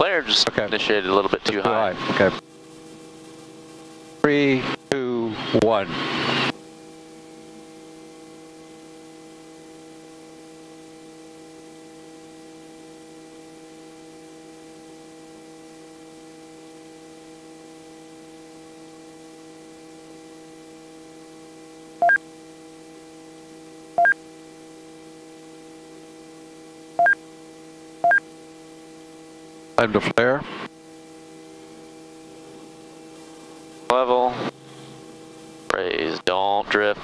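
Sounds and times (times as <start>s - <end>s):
helicopter cabin hum: 0.0s - 6.5s, 29.8s - 37.0s.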